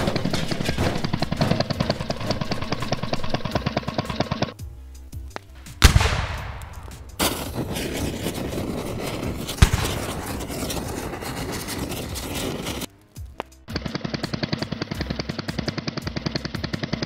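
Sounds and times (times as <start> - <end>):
crackling fire: 0.0 - 16.4
explosion bang: 5.7 - 8.0.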